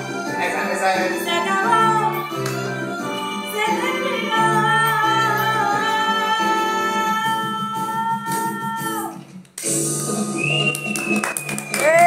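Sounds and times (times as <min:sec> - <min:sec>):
woman singing: 0:03.1 - 0:09.2.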